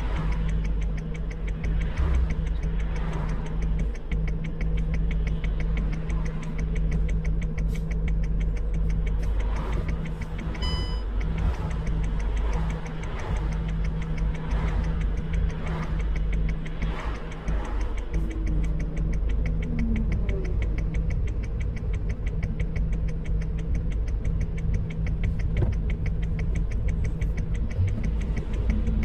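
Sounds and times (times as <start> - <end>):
fast even ticking: 0.0 - 29.0
vehicle engine idling: 0.0 - 29.0
short electronic beep: 10.6 - 11.1.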